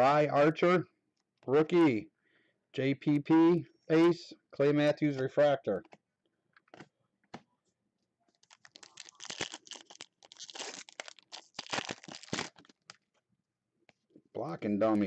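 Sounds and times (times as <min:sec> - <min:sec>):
foil wrapper tearing and crinkling: 0:08.3 - 0:13.0.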